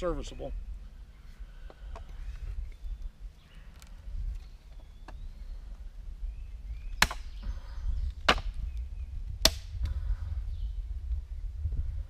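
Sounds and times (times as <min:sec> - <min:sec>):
hatchet chopping wood: 0:07.0 - 0:07.3, 0:09.4 - 0:09.7.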